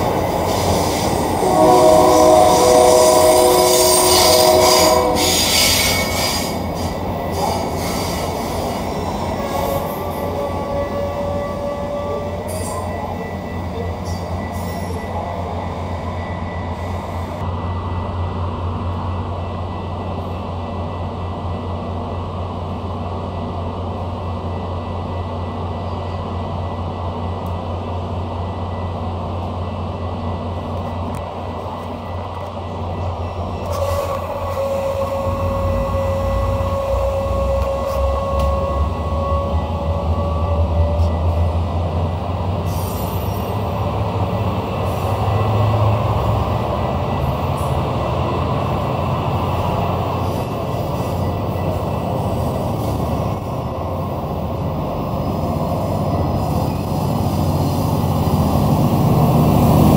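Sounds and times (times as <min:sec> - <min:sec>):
train humming: 0:00.0 - 0:59.9
high brake squeal: 0:00.4 - 0:15.2, 0:33.6 - 0:41.3, 0:42.7 - 0:43.6.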